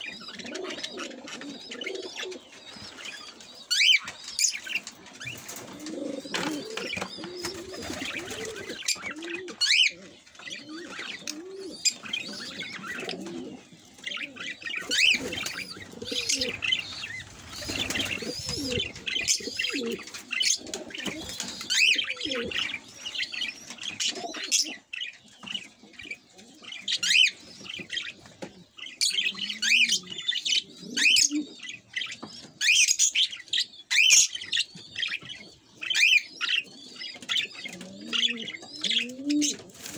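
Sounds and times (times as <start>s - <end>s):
caged birds chattering and chirping: 0.0s - 39.9s
wings fluttering: 4.0s - 9.3s, 14.1s - 22.7s, 39.5s - 39.9s.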